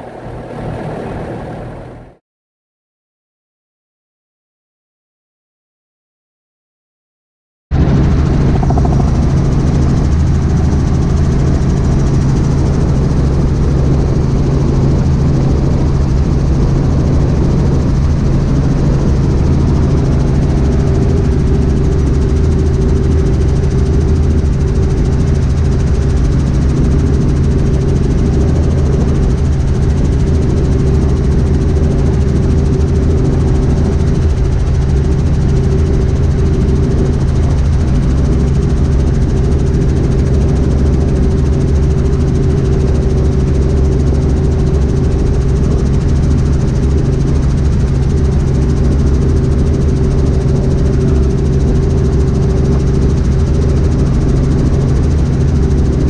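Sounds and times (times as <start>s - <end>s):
helicopter rotors and engine drone: 0.0s - 2.2s, 7.8s - 56.0s.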